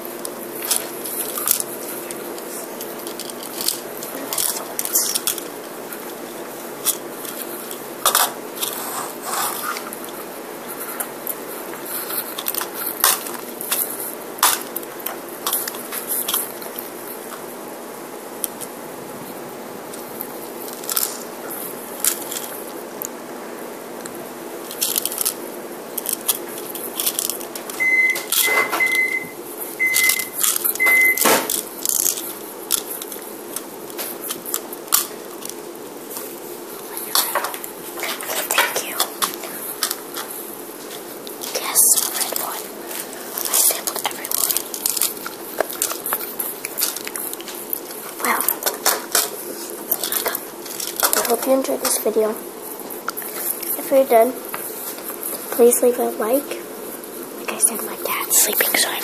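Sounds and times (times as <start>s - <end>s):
appliance keypad beeps: 27.8s - 31.4s.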